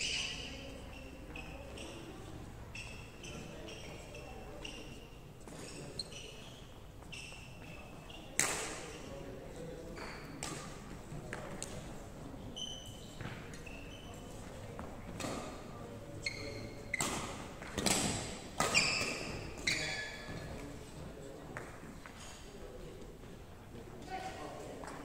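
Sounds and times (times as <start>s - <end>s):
shoes squeaking on wooden floor: 2.8s - 8.3s, 16.2s - 17.3s, 18.6s - 20.7s
rackets hitting shuttlecock: 16.9s - 19.7s.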